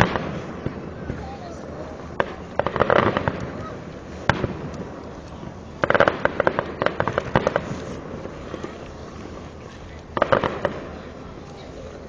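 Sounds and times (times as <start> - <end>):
fireworks bangs: 0.0 - 12.0
fireworks crackling pops: 0.0 - 12.0.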